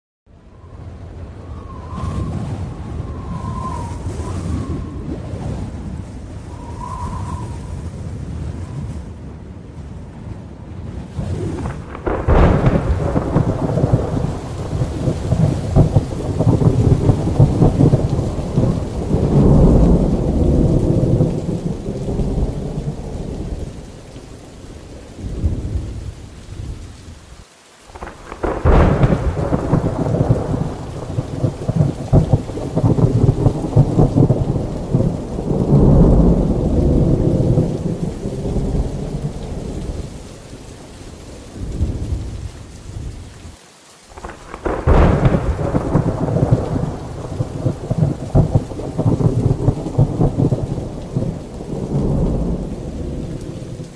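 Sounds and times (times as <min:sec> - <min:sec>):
rain falling: 0:00.3 - 0:53.9
rolling thunder: 0:00.5 - 0:27.1, 0:27.9 - 0:43.3, 0:44.1 - 0:53.9
sharp thunder crack: 0:11.2 - 0:23.8, 0:28.0 - 0:40.2, 0:44.2 - 0:53.9.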